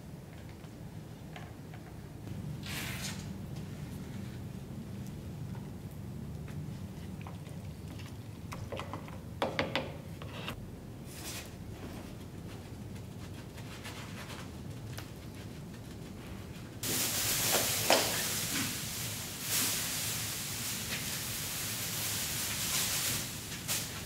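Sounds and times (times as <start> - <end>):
plastic sheeting rustling: 16.8 - 24.0.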